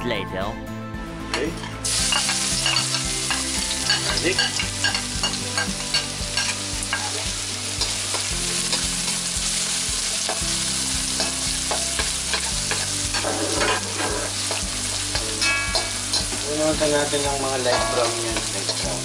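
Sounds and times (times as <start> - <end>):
spatula scraping metal wok: 1.6 - 9.2, 11.2 - 16.5
garlic sizzling in oil: 1.7 - 19.0.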